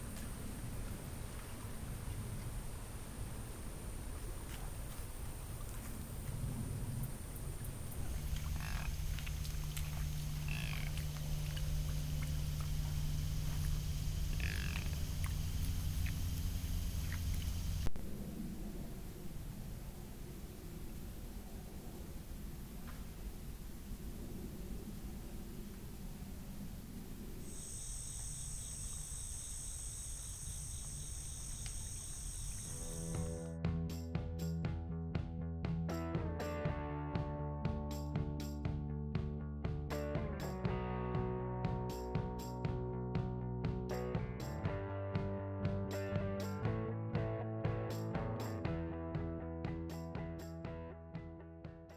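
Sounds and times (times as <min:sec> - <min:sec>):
trail camera hum: 0:00.0 - 0:33.5
night insects trilling: 0:00.1 - 0:17.9, 0:27.4 - 0:33.5
music: 0:08.2 - 0:17.0, 0:32.9 - 0:51.9.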